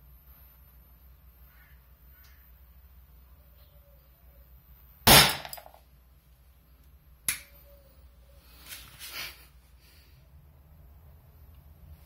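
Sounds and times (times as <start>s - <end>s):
capacitor bang: 5.1s - 5.8s.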